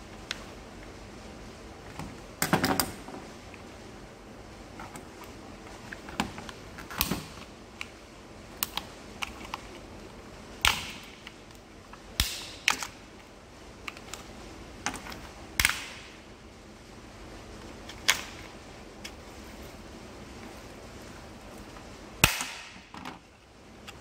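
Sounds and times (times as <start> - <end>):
plastic clicks and snaps: 8.6 - 9.8.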